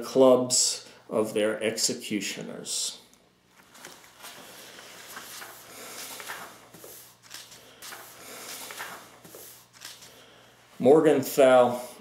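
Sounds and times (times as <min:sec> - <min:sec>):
book pages rustling: 0:03.5 - 0:10.2.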